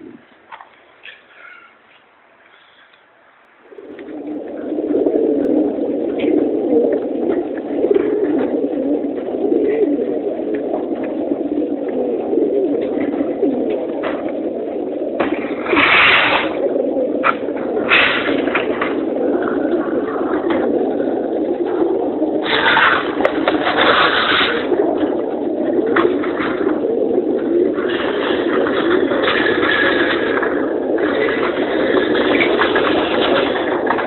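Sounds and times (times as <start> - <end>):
pigeons cooing: 0.0 - 34.0.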